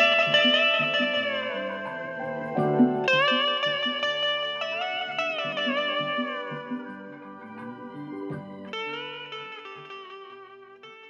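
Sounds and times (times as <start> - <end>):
guitar melody with sliding notes: 0.0 - 11.0
plucked guitar accompaniment: 0.0 - 11.0.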